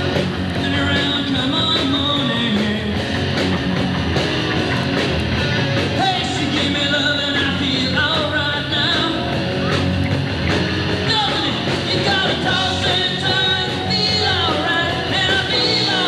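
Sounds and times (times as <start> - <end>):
drum kit steady beat: 0.0 - 16.0
electric guitars: 0.0 - 16.0
live rock band playing: 0.0 - 16.0
man singing into a microphone: 0.5 - 3.2, 6.0 - 9.4, 11.0 - 16.0.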